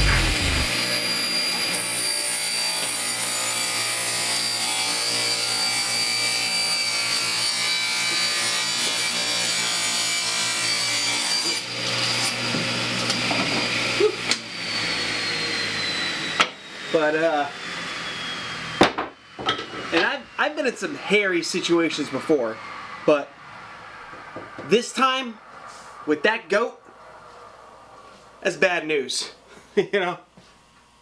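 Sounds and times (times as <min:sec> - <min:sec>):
table saw cutting wood: 0:00.0 - 0:20.6.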